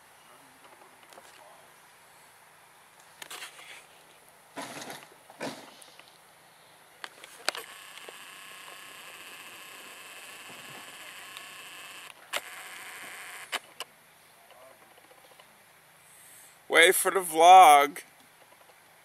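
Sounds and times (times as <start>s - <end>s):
zoom lens motor whirring: 7.2s - 13.8s.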